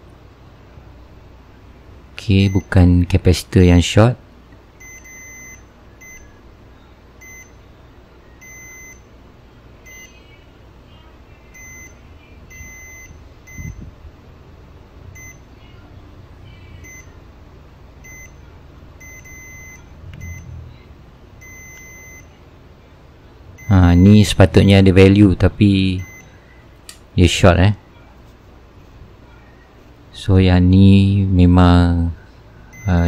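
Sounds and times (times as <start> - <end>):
multimeter continuity beeps: 2.4 - 2.9, 4.8 - 6.4, 7.2 - 7.7, 8.3 - 9.1, 9.8 - 10.4, 11.5 - 13.9, 15.1 - 15.5, 16.7 - 17.2, 18.0 - 20.6, 21.4 - 22.4, 23.5 - 24.6, 25.8 - 26.5, 32.6 - 33.0.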